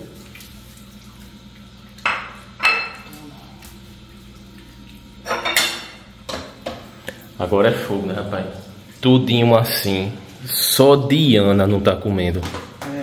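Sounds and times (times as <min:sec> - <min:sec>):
bowls clinking: 0:02.0 - 0:03.8, 0:04.5 - 0:07.2.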